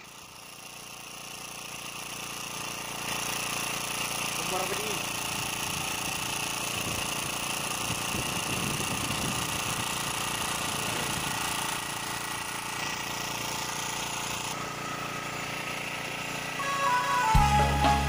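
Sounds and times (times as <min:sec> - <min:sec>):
small generator engine running: 0:00.0 - 0:18.0.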